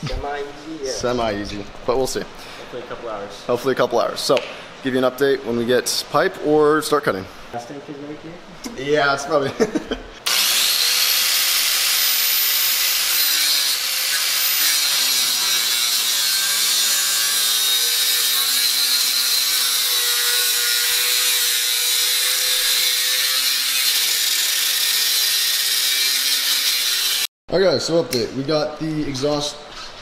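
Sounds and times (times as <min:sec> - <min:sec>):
angle grinder cutting steel pipe: 0:10.2 - 0:27.3.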